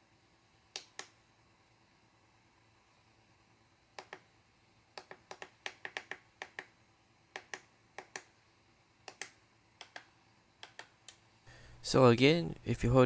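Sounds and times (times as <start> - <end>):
transmitter buttons clicking: 9.0 - 11.2.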